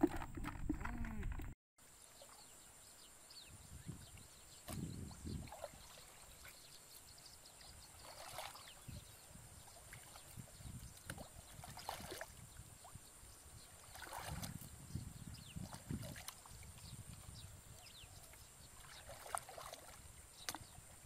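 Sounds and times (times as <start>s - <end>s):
water sloshing around legs: 5.4s - 13.0s, 13.7s - 14.8s, 15.5s - 21.0s.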